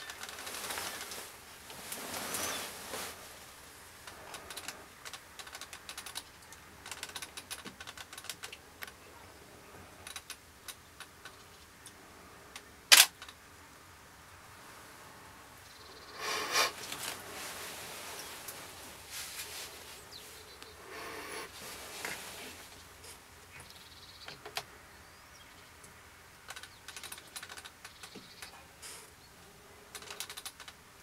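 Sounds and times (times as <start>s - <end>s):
rustling: 0.0s - 9.1s, 16.1s - 23.8s
dry clicks and ticks: 4.0s - 9.0s, 10.0s - 13.4s, 25.8s - 28.6s, 29.9s - 30.8s.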